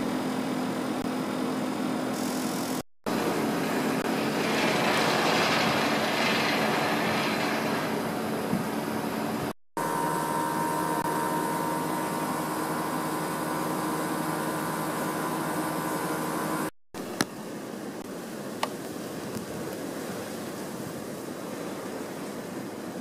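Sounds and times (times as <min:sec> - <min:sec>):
wind rushing in snowstorm: 0:03.1 - 0:09.6
faint steady hum: 0:08.0 - 0:22.9.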